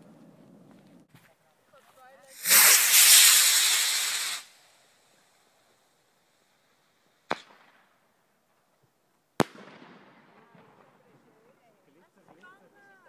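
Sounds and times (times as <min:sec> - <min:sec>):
firework bangs with echo: 0:09.4 - 0:10.4.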